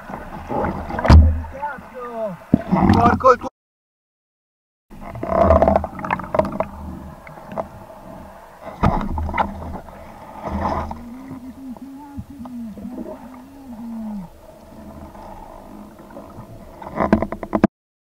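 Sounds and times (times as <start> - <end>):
underwater bubbles and splashing: 0.0 - 3.2, 4.9 - 17.7
muffled wavering low hum: 5.0 - 16.7.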